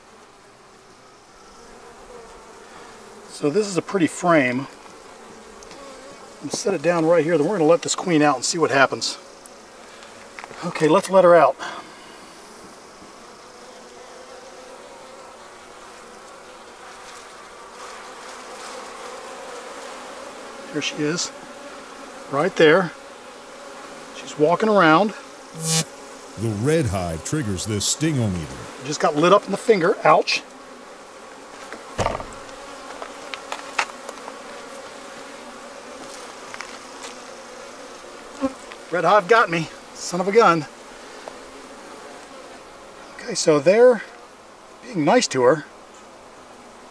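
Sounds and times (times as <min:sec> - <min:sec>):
honeybees buzzing: 0:00.1 - 0:07.7, 0:12.1 - 0:38.9
knock: 0:32.0 - 0:32.4.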